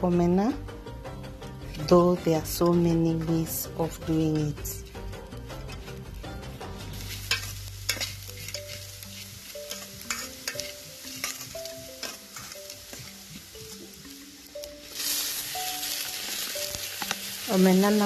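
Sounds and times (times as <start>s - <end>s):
soft background music: 0.0s - 18.0s
soft sizzle: 1.2s - 18.0s
spoon scraping metal pot: 7.1s - 13.2s.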